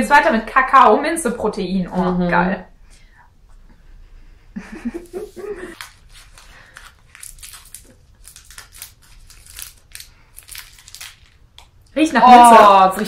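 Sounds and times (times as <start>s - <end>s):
wrapper crinkling and tearing: 5.8s - 11.8s.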